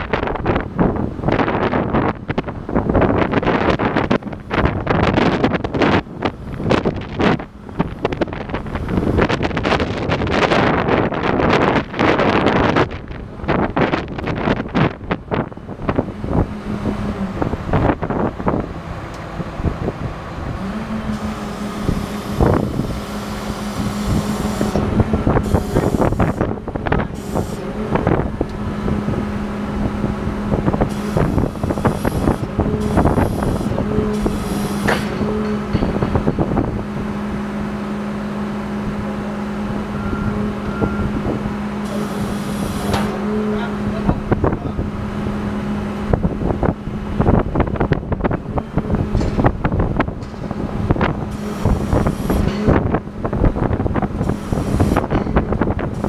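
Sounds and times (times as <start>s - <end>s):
heavy machinery engine humming: 0.0s - 56.0s
wind noise on microphone: 0.0s - 56.0s
metallic knocks and clanks: 34.8s - 36.7s.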